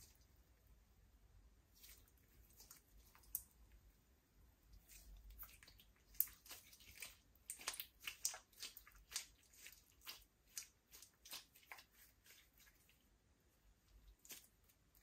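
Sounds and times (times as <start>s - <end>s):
slime squelching and clicking: 1.9s - 3.6s, 4.8s - 13.0s.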